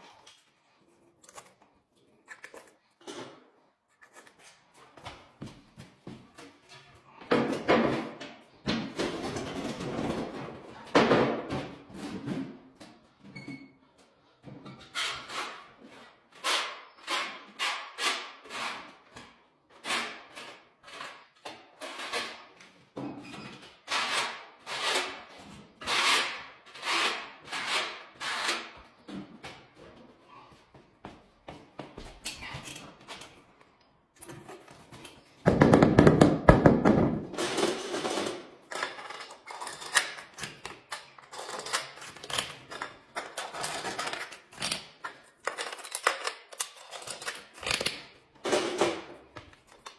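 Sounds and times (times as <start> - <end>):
plastic caps rattling clicks: 38.8 - 48.1.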